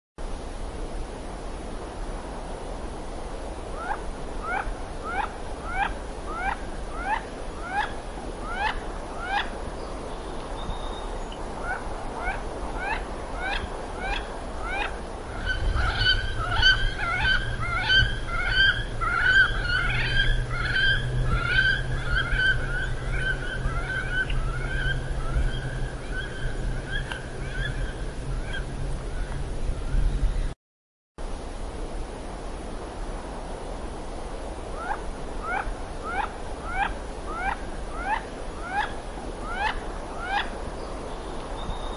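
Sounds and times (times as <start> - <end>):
steady low hum: 0.3 - 30.5
birds calling: 3.8 - 30.5.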